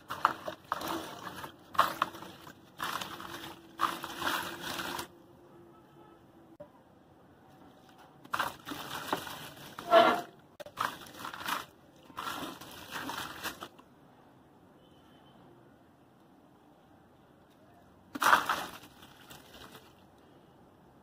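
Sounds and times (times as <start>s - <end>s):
cement crumbling gritty crunching: 0.0s - 5.1s, 8.2s - 13.8s, 18.1s - 20.0s.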